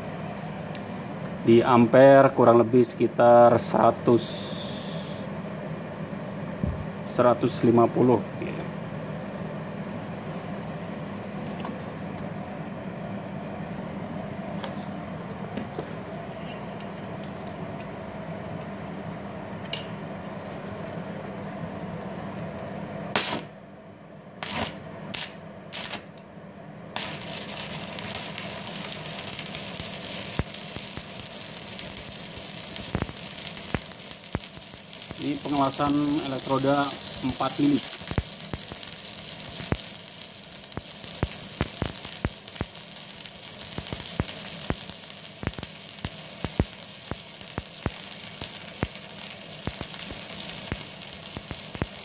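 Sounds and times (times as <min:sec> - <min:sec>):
welding arc sizzling crackle: 0:03.6 - 0:05.4, 0:22.4 - 0:23.6, 0:24.4 - 0:26.3, 0:26.9 - 0:52.0
welding machine hum: 0:04.2 - 0:05.4, 0:22.3 - 0:23.7, 0:24.3 - 0:52.0.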